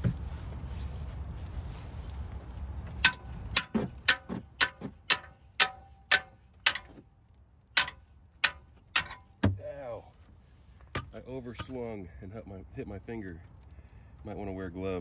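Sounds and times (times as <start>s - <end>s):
hammer striking metal bar: 3.0s - 7.0s, 7.8s - 9.6s.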